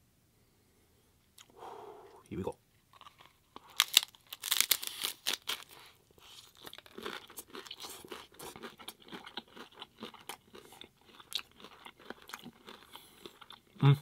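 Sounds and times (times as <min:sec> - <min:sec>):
taco shell crunching while chewed: 0:02.9 - 0:13.8.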